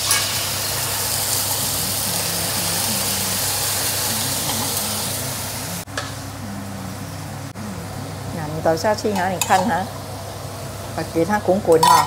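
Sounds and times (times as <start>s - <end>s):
meat sizzling in a wok: 0.0s - 5.9s
low steady hum: 1.6s - 12.0s.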